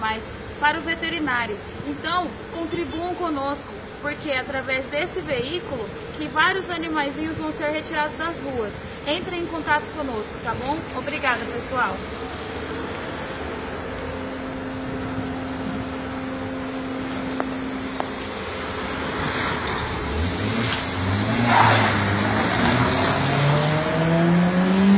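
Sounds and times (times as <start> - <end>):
street traffic hum: 0.0 - 24.9
car engine accelerating: 12.0 - 24.9.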